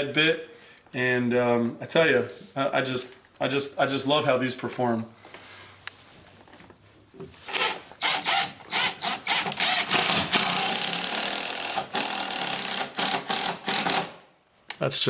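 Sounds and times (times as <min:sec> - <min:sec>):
power drill driving a screw: 0:07.4 - 0:14.2.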